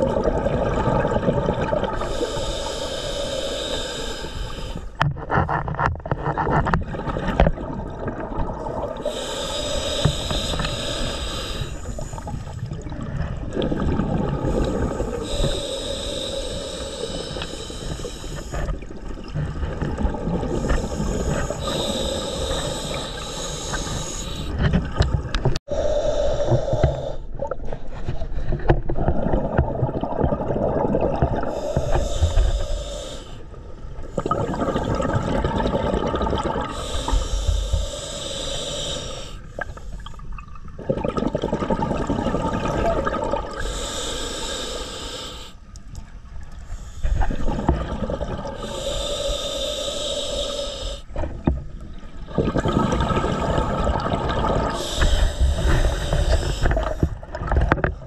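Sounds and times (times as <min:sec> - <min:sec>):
exhaled bubbles rumbling: 0:00.0 - 0:02.8, 0:04.5 - 0:25.6, 0:26.5 - 0:38.2, 0:38.8 - 0:43.9, 0:45.8 - 0:49.2, 0:51.1 - 0:58.0
regulator breathing hiss: 0:02.0 - 0:05.0, 0:09.0 - 0:12.6, 0:14.5 - 0:18.7, 0:20.5 - 0:24.7, 0:31.5 - 0:33.5, 0:36.7 - 0:40.1, 0:43.6 - 0:45.7, 0:46.6 - 0:47.5, 0:48.6 - 0:51.3, 0:54.7 - 0:57.2.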